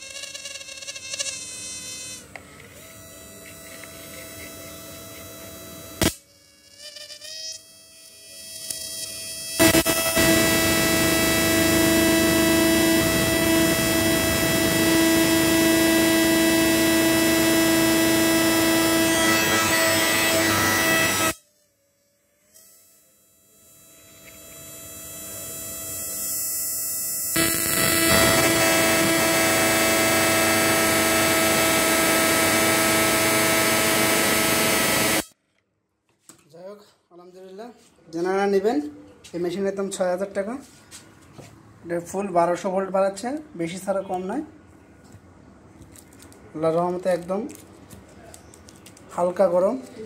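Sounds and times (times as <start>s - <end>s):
electrical buzz: 0.0s - 35.4s.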